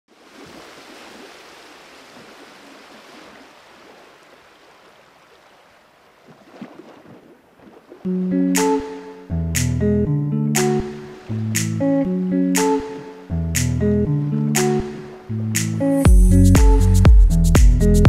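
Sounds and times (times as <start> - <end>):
guitar music: 8.1 - 18.0.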